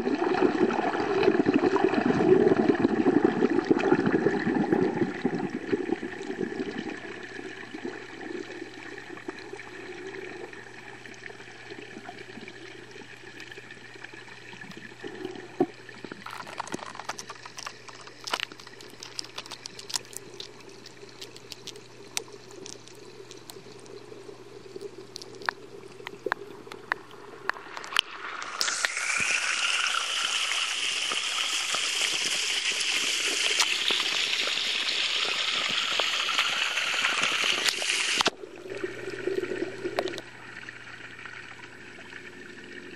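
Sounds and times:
muffled underwater hum: 0:00.5 - 0:42.9
small underwater clicks: 0:03.6 - 0:42.9
waterfall splashing into pond: 0:27.5 - 0:38.4.

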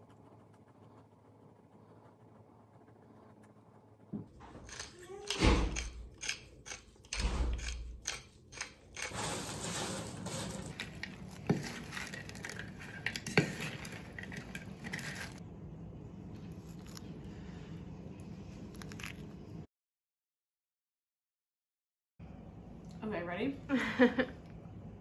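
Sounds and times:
pepper mill grinding: 0:04.6 - 0:09.2.

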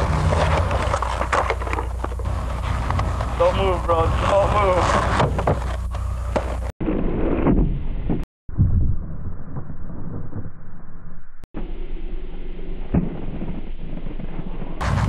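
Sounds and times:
low wind rumble on microphone: 0:14.8 - 0:15.0.

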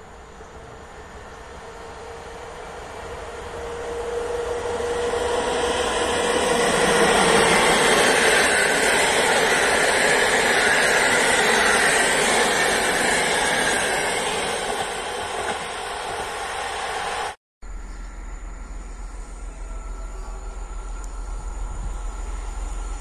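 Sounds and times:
locomotive hum: 0:00.0 - 0:23.0
train wheels on rails: 0:00.0 - 0:23.0.

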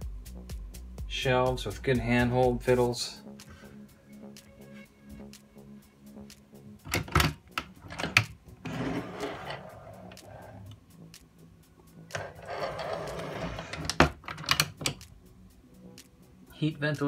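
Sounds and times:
wooden door scraping: 0:06.9 - 0:10.7, 0:12.1 - 0:14.7
latch clicks: 0:13.7 - 0:15.1.

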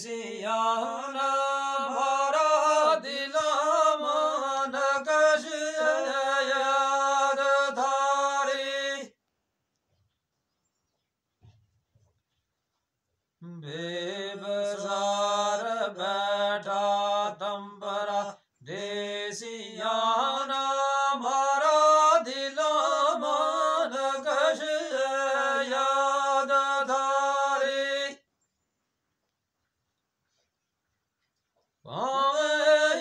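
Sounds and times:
man singing unaccompanied: 0:00.0 - 0:09.2, 0:13.4 - 0:28.3, 0:31.9 - 0:33.0.

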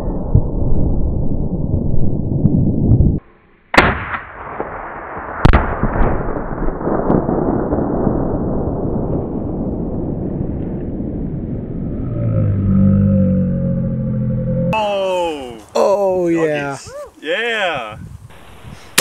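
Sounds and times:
explosive target blast cracks: 0:03.7 - 0:12.0.

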